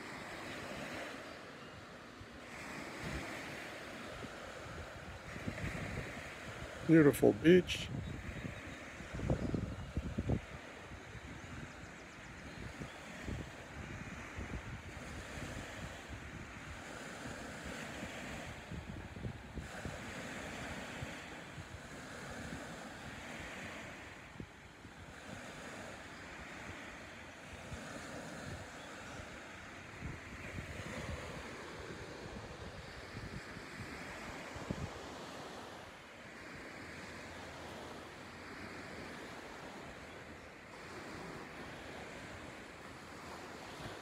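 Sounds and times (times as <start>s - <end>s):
small waves lapping on beach: 0.0s - 44.0s
wind rumbling on microphone: 2.2s - 35.7s.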